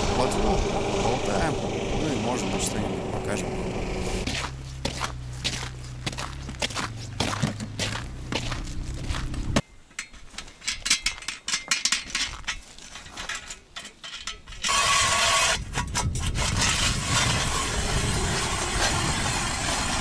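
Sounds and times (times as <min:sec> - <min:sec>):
ice auger grinding: 0:00.0 - 0:07.4, 0:14.6 - 0:20.0.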